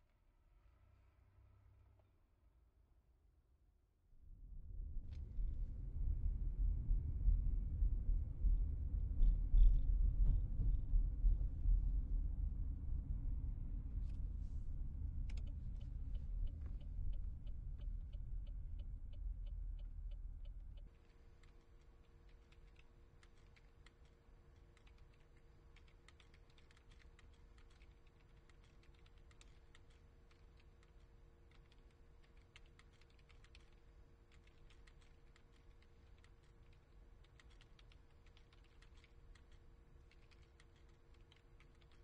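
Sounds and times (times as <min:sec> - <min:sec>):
computer keyboard typing: 0:21.4 - 0:42.0.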